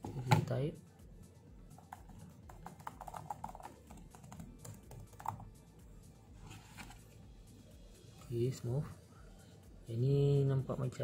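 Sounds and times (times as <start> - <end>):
keyboard keys clicking: 1.8 - 5.4.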